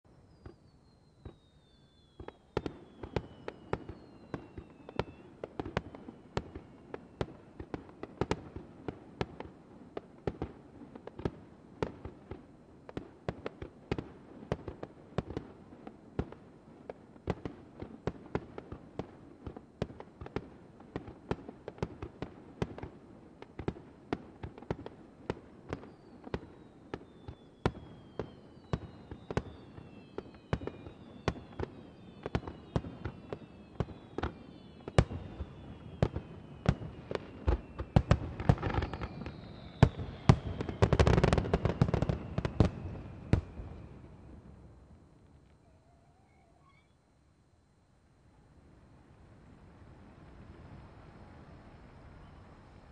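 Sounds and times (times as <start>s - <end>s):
falling whistles: 0.1s - 7.7s, 25.6s - 44.6s, 45.6s - 47.2s
fireworks bursting with bangs: 0.3s - 44.6s
fireworks crackle: 0.3s - 45.6s.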